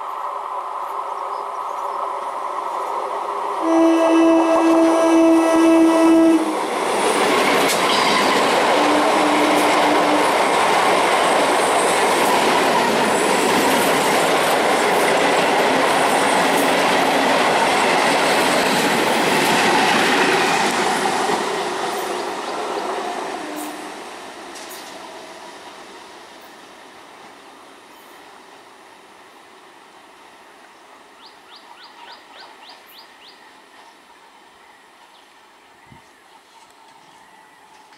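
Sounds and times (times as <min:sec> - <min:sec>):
train passing at speed: 0:00.0 - 0:34.9
rail clatter: 0:06.5 - 0:25.0.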